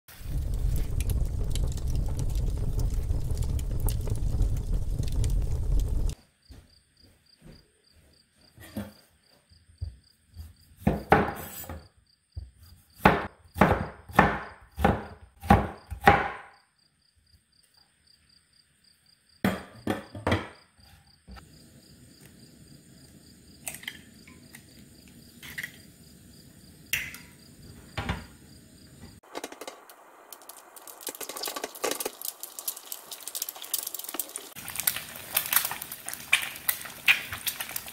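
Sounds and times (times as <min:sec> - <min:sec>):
egg sizzling in oil: 0:00.1 - 0:06.2, 0:29.2 - 0:37.9
wind buffeting microphone: 0:00.1 - 0:06.2
knife chopping on wooden board: 0:13.0 - 0:16.4.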